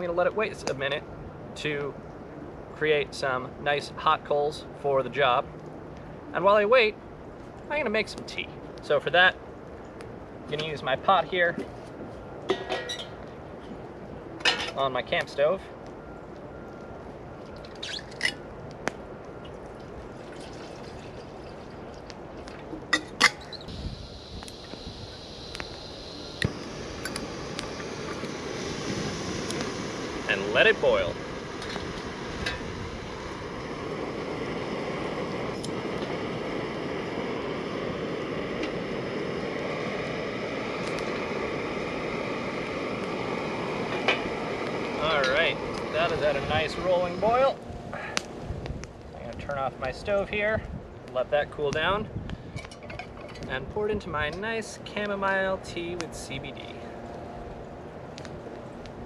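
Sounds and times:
steady background hiss: 0.0s - 59.0s
water boiling: 19.4s - 47.5s
camp stove burner rushing: 19.5s - 48.9s.

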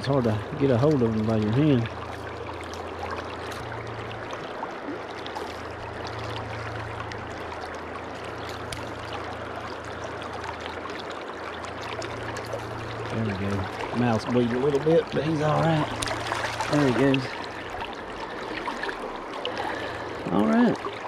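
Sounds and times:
river water rushing: 0.0s - 21.0s.

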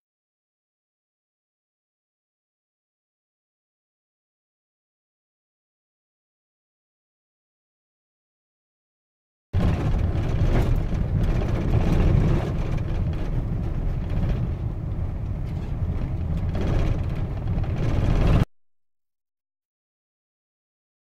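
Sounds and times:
vehicle rumbling on dirt road: 9.6s - 18.5s.

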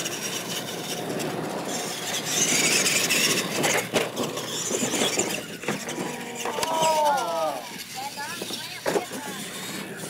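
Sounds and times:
toy truck electric motors whining: 0.0s - 10.0s.

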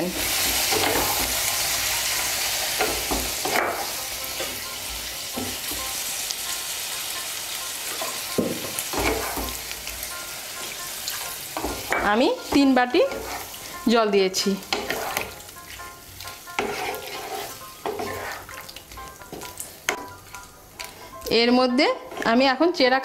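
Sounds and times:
curry sizzling in a pan: 0.0s - 23.0s
spatula scraping and stirring: 7.9s - 22.5s.

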